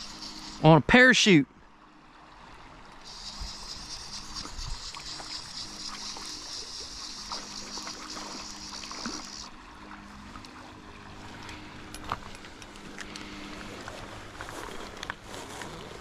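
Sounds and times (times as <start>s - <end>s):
high hiss: 0.0s - 1.4s, 3.0s - 9.5s
creek water running: 0.0s - 16.0s.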